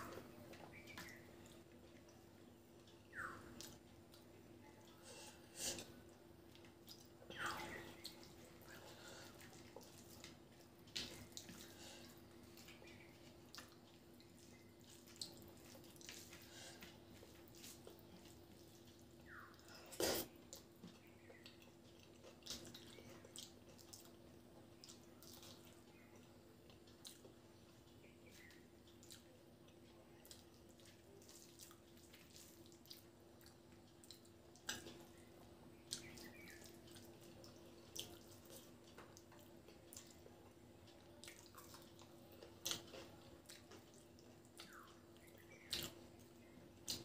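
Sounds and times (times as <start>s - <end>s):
faint steady hum: 0.0s - 47.0s
wet chewing: 0.0s - 47.0s
lip smacks and mouth clicks: 40.8s - 47.0s.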